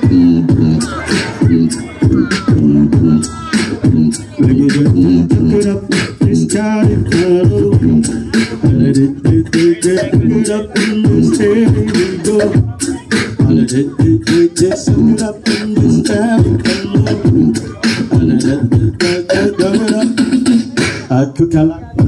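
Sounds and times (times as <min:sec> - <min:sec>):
hummed bass line: 0:00.0 - 0:12.8
human beatboxing: 0:00.0 - 0:22.0.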